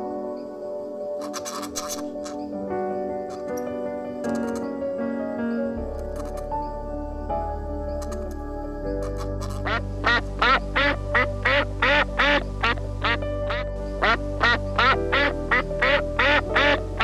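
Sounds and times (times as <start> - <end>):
background music with chords: 0.0 - 17.0.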